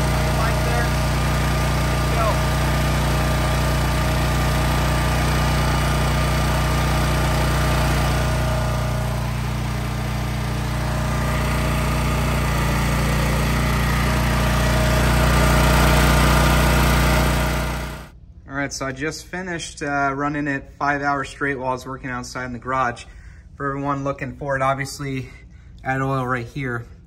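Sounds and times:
portable generator engine running: 0.0 - 18.2.

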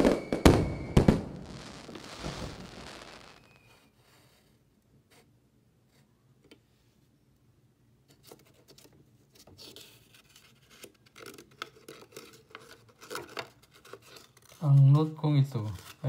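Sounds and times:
paper rustling and scraping: 8.2 - 16.0.

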